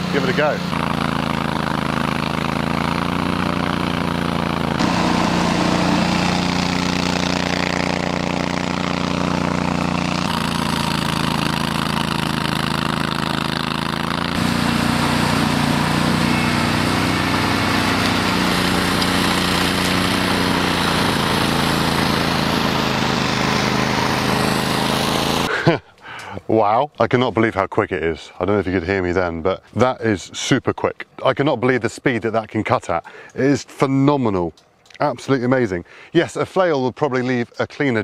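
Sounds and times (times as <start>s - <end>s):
mower engine running under load: 0.0s - 25.7s.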